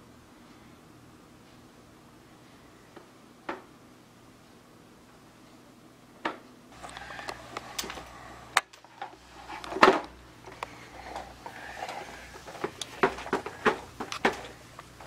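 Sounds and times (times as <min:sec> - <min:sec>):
toy wheels rumbling on carpet: 0:08.9 - 0:14.6.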